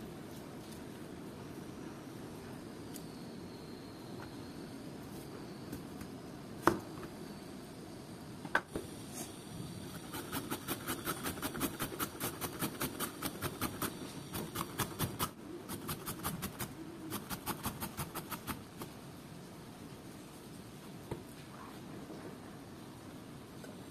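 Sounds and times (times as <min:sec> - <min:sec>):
papaya grated on metal grater: 0:09.9 - 0:18.7.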